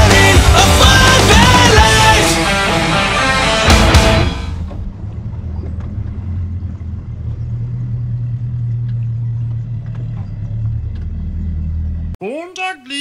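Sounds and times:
outboard motor idling: 0:04.5 - 0:12.2.

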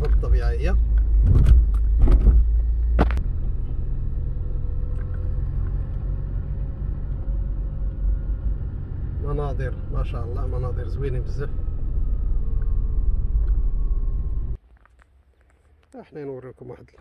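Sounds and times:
car road and engine rumble: 0:00.0 - 0:14.8.

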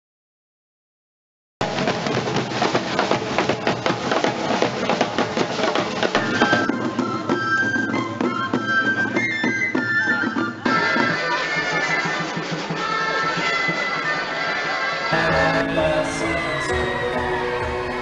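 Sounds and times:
snare and bass drums playing: 0:01.6 - 0:07.0
high wind instrument melody: 0:06.2 - 0:18.0.

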